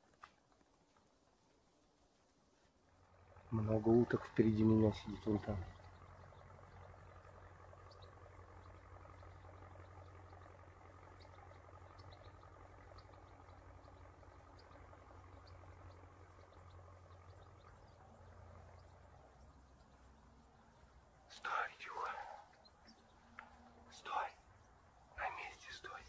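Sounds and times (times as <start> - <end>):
low steady hum: 0.0 - 26.0
faint high ticks: 5.4 - 24.6.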